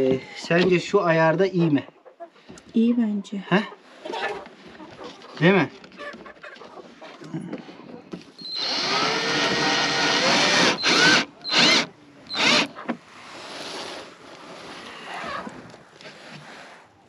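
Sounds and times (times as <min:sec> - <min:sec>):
cordless drill drilling plastic: 0:08.4 - 0:12.8.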